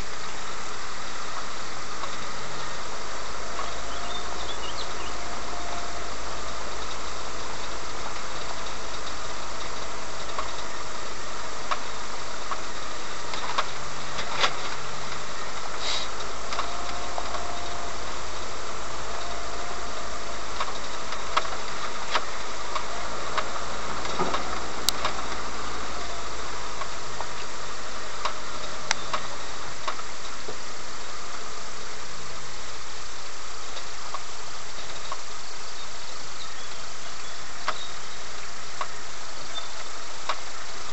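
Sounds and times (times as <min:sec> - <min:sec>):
vehicle engine running in cab: 0:00.0 - 0:40.9.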